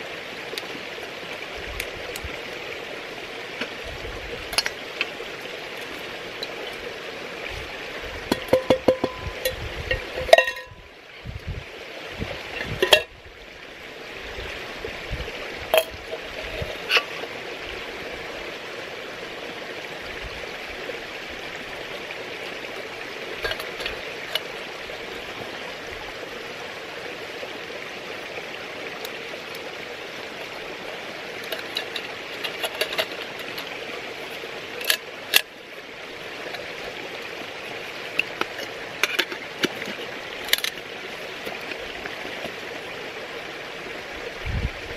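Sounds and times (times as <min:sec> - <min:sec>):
metal camping gear clinking: 0:08.3 - 0:10.8, 0:12.5 - 0:13.1, 0:15.7 - 0:17.3, 0:23.4 - 0:24.6, 0:31.4 - 0:35.5, 0:37.6 - 0:42.7.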